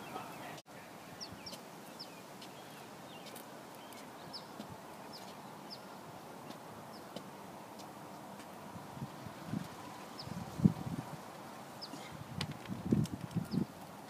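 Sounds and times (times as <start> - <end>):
faint outdoor background: 0.0 - 14.0
small bird chirping: 1.2 - 7.2, 13.3 - 13.7.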